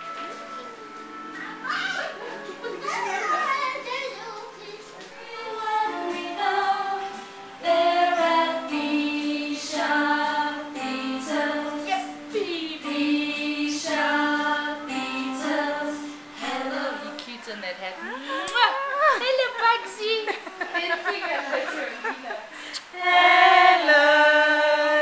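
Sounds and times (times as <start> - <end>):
high voices singing: 5.1 - 17.4, 22.8 - 25.0.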